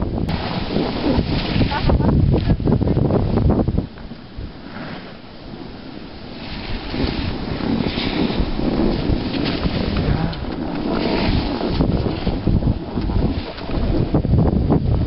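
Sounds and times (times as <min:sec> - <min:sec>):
wind buffeting microphone: 0:00.0 - 0:15.0
skis hissing over snow: 0:00.4 - 0:02.0, 0:04.5 - 0:13.9.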